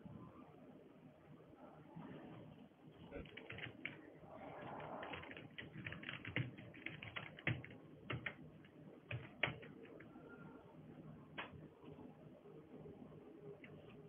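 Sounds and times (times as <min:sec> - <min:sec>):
keyboard keys clicking: 0:03.2 - 0:04.0, 0:04.8 - 0:10.1.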